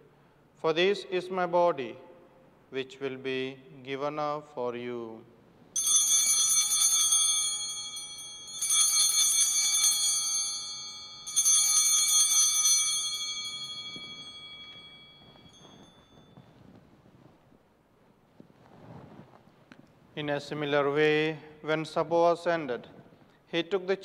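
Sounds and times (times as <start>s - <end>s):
altar bells shaken: 5.8s - 17.0s.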